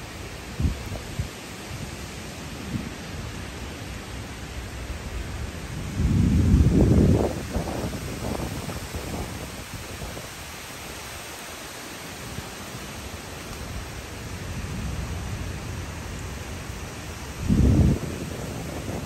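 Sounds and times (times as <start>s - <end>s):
wind rushing through trees: 0.0s - 19.0s
low thunder rumble: 4.6s - 10.2s, 14.3s - 19.0s.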